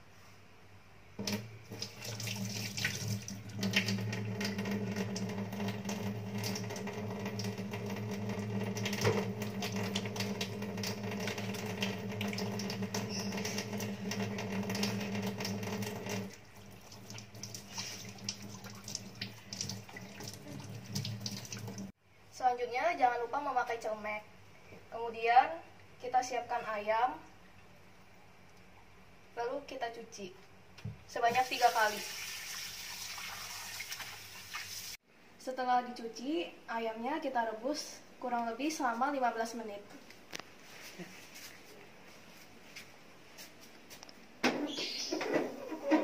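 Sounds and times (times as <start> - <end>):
tap water running into sink: 1.2 - 21.9, 31.3 - 34.9
hands washing under water: 1.3 - 21.9.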